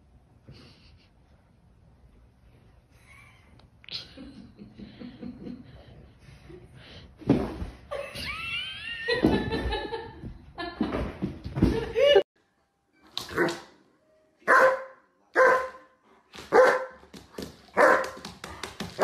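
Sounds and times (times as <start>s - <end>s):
person laughing: 7.9s - 10.2s.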